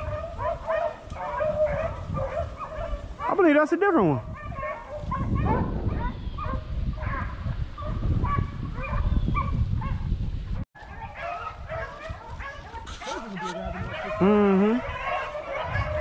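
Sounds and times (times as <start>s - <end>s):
distant dogs baying: 0.0s - 3.5s, 4.2s - 10.1s, 10.8s - 16.0s
rustling through dry brush: 10.8s - 16.0s.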